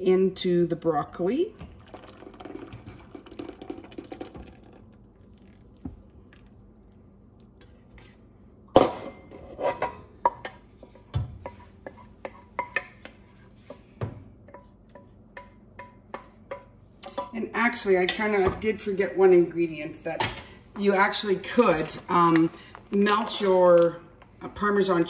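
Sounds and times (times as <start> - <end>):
thick sauce pouring: 1.6 - 8.0.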